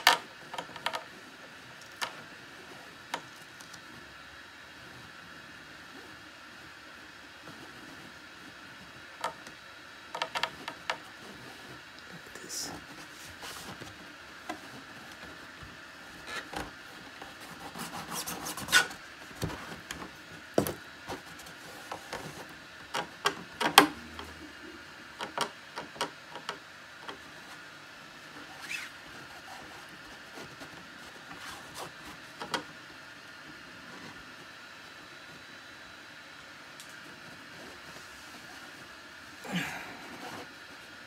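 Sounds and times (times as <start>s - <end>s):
hands rubbing tape: 12.7s - 20.0s, 28.4s - 32.6s.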